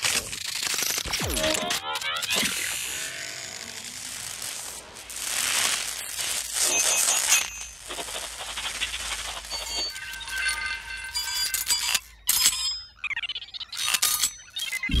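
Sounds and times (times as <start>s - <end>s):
metallic mechanical rattling and clicking: 0.0s - 2.4s.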